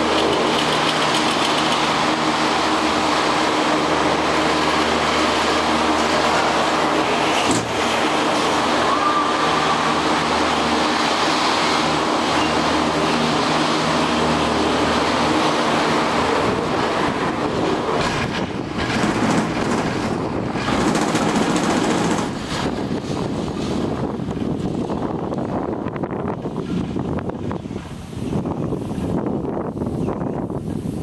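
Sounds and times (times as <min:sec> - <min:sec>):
rough gusty noise: 0:00.0 - 0:31.0.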